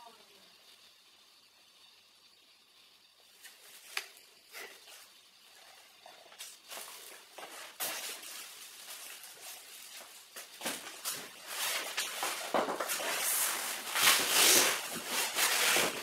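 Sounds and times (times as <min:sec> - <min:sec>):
cardboard rustling and scraping: 0:06.7 - 0:16.0.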